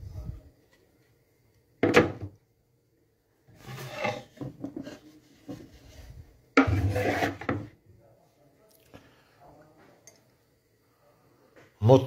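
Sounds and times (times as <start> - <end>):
knock: 1.8 - 2.3
scraping and shuffling: 3.5 - 7.8.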